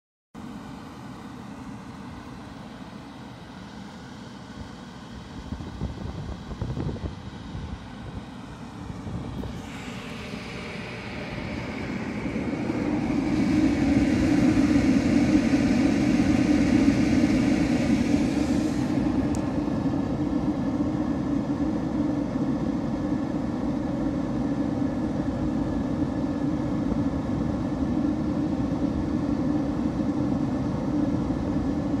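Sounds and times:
heater fan and burner hum: 0:00.4 - 0:32.0.

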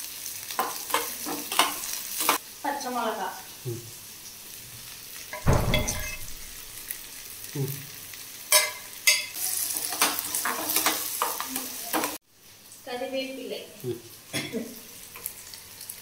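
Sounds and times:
onions sizzling in hot oil: 0:00.0 - 0:16.0
thump: 0:05.4 - 0:06.5
metal spatula clacking on pan: 0:08.5 - 0:09.3.

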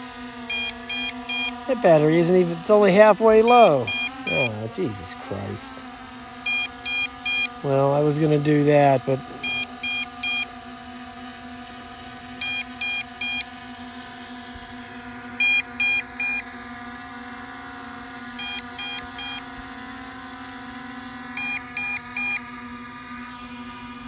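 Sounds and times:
steady hum: 0:00.0 - 0:24.0
short high warning beeps: 0:03.4 - 0:04.6, 0:09.4 - 0:10.5.

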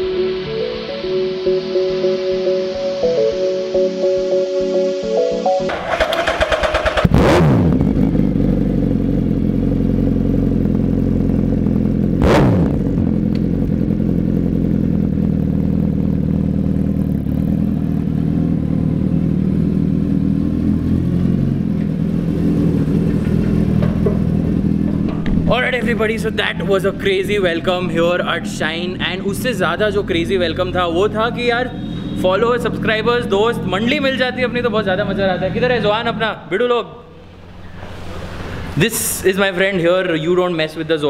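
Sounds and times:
motorcycle engine idling and revving: 0:05.7 - 0:36.1.

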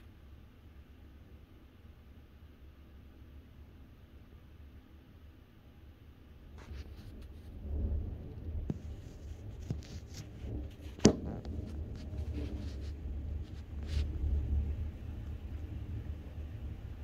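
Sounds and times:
distant thunder rumbling: 0:06.6 - 0:17.0.

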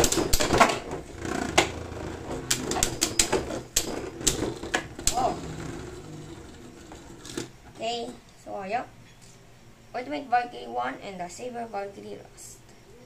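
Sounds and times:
spinning tops whirring: 0:00.0 - 0:07.7
spinning tops colliding clicks: 0:02.4 - 0:05.4.

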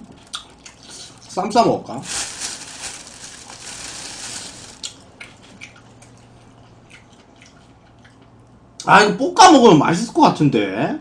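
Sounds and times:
plastic bag rustling: 0:01.9 - 0:05.0.

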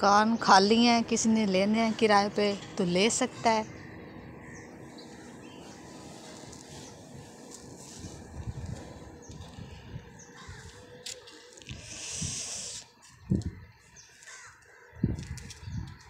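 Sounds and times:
distant crows cawing: 0:03.3 - 0:06.1, 0:10.2 - 0:11.0, 0:13.6 - 0:15.0
brief hiss: 0:11.8 - 0:12.9.

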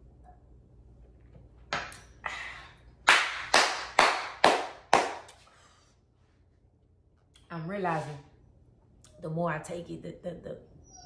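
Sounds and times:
hand claps: 0:03.0 - 0:05.4.

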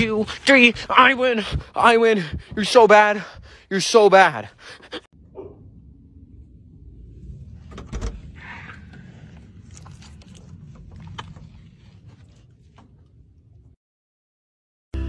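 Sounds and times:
low rumble: 0:04.5 - 0:13.8.

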